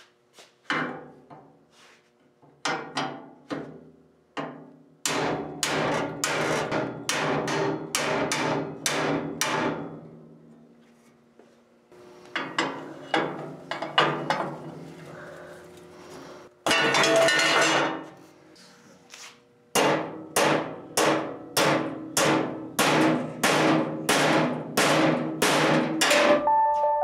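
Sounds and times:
hammer striking steel: 19.8s - 26.4s.

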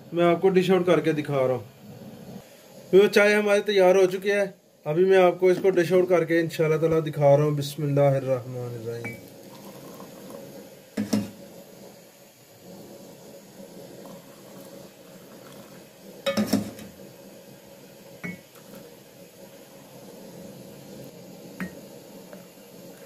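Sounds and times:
kitchenware clinking and knocking: 16.3s - 16.9s.

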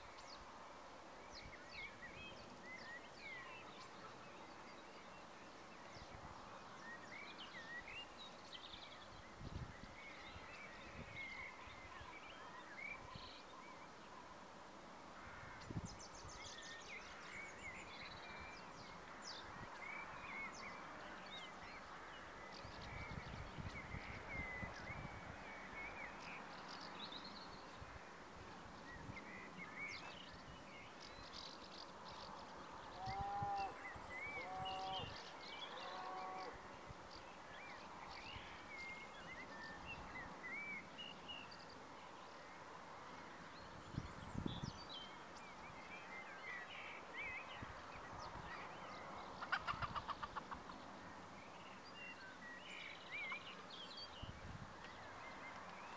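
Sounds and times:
small birds chirping: 15.2s - 55.9s.

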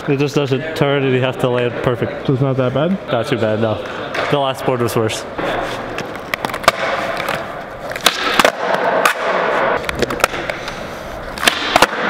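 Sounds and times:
skateboard clacking on concrete: 6.0s - 10.8s.

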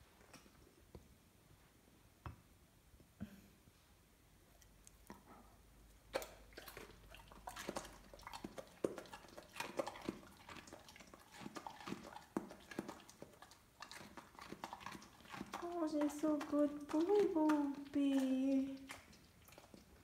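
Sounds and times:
dog crunching carrot: 5.9s - 20.0s.

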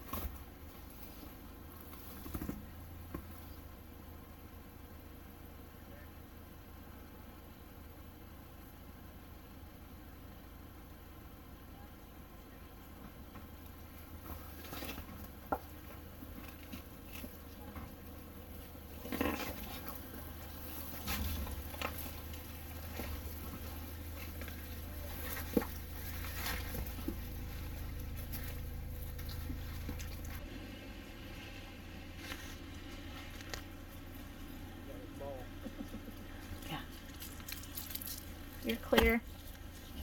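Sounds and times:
off-road vehicle engine rumble: 0.0s - 40.0s
tyres crunching on rock: 13.9s - 30.4s.

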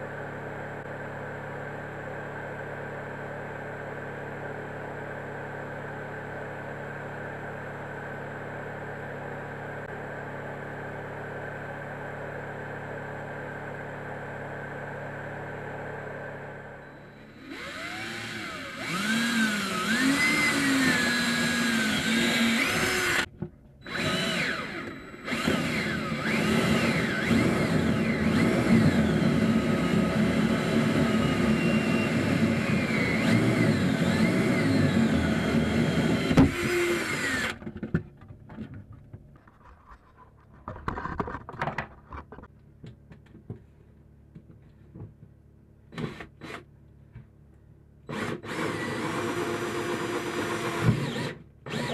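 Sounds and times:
cordless drill boring: 17.2s - 37.7s, 45.9s - 46.7s, 48.1s - 51.9s.

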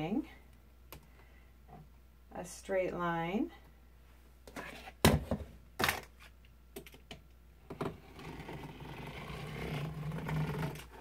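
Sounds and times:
rotary cutter scraping through felt: 8.1s - 11.0s.

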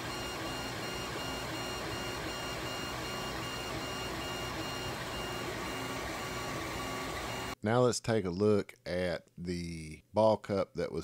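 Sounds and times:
stepper motors whirring: 0.0s - 7.6s.

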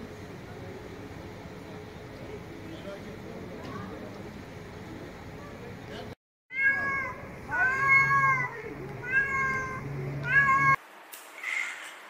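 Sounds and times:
cat meowing: 6.5s - 10.8s.

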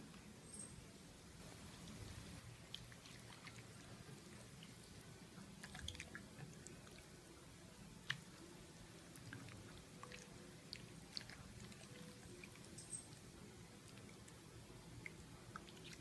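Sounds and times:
wet squelches of handled chicken: 1.9s - 7.3s, 9.0s - 16.0s.

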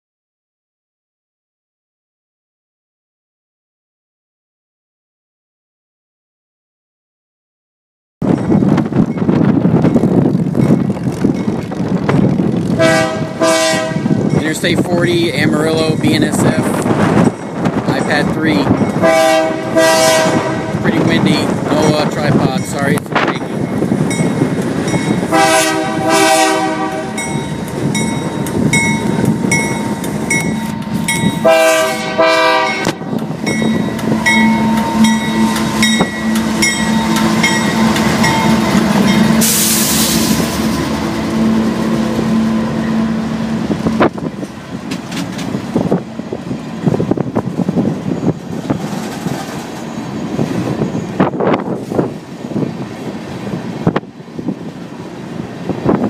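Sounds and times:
diesel locomotive engine drone: 8.2s - 56.0s
locomotive air horn blasts: 12.8s - 14.2s, 19.0s - 20.9s, 25.3s - 27.4s, 31.3s - 40.4s
train wheels clattering over rail joints: 44.0s - 46.1s, 46.9s - 51.9s.

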